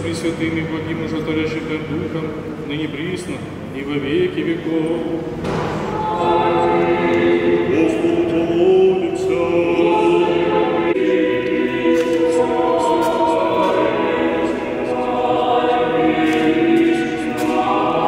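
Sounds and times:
choir singing a cappella: 0:05.8 - 0:18.0.

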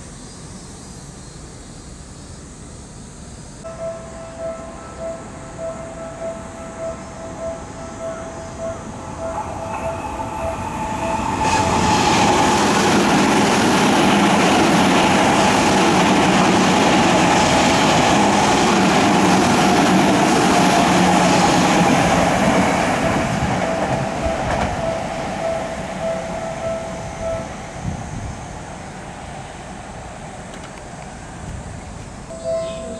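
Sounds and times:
electric train passing: 0:03.6 - 0:32.9
level crossing warning bell: 0:03.7 - 0:27.8, 0:32.3 - 0:32.9.

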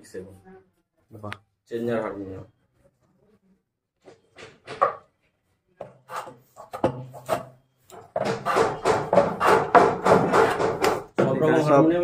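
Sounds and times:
wooden frames knocking: 0:04.3 - 0:05.1, 0:06.6 - 0:11.5.

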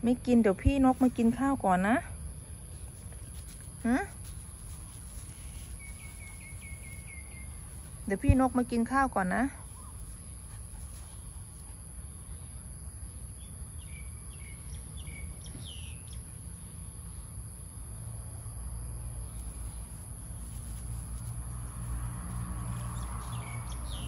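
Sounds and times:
insects droning: 0:00.0 - 0:24.0
bird chirps: 0:05.7 - 0:07.7.

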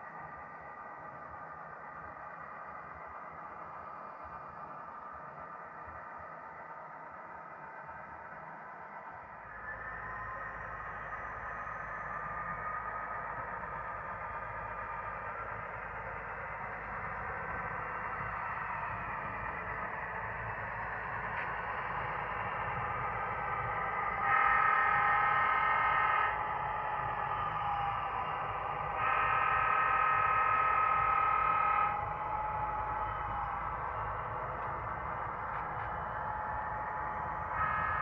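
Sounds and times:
model locomotive diesel engine sound: 0:08.0 - 0:38.0.

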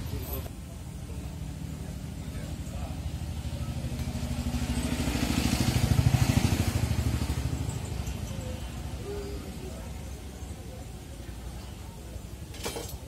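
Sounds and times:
vehicle engine passing by: 0:01.1 - 0:11.3.

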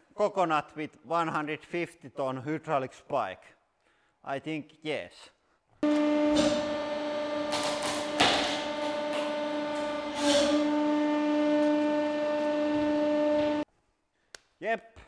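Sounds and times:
hydraulic press humming: 0:05.8 - 0:13.7.

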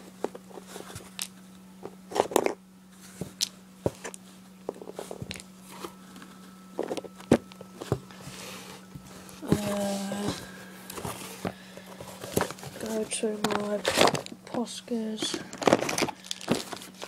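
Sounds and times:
cardboard rustling: 0:00.0 - 0:01.3, 0:02.1 - 0:17.0
steady low hum: 0:00.0 - 0:17.0.

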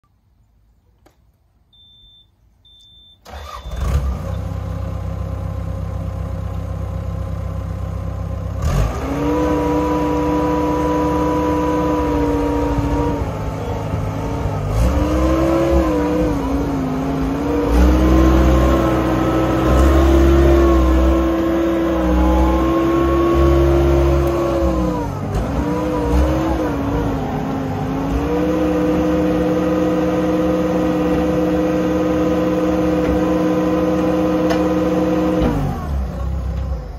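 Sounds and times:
short high beeps: 0:01.7 - 0:03.8
diesel engine running: 0:03.3 - 0:36.9.

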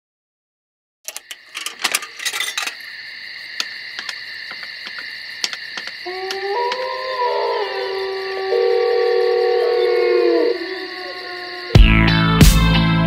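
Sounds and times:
ticks and clicks: 0:01.1 - 0:02.8, 0:03.6 - 0:06.8.

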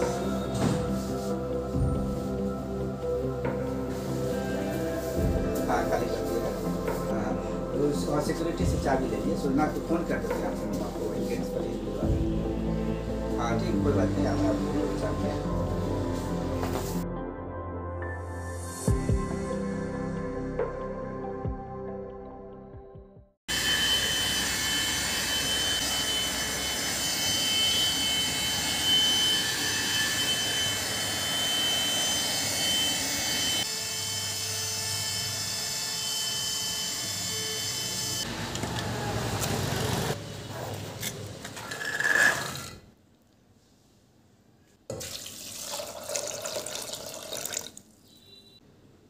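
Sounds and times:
handheld vacuum running: 0:23.5 - 0:40.2.

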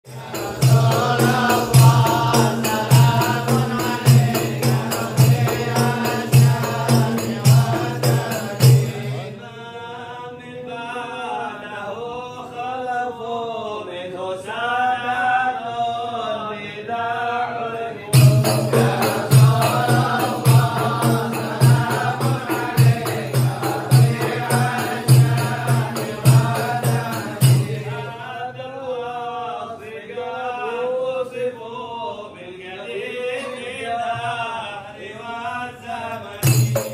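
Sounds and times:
frame drum with jingles: 0:00.1 - 0:09.2, 0:18.2 - 0:28.1, 0:36.4 - 0:36.9
devotional chant singing: 0:00.1 - 0:36.9.

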